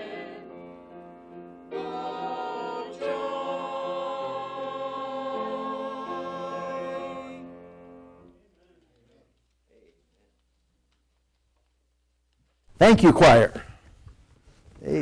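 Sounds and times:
choir singing held chord: 0.0 - 8.2.

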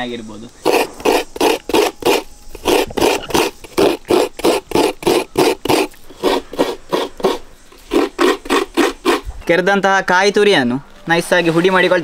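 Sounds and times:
coconut rasping on grater: 0.6 - 9.3.

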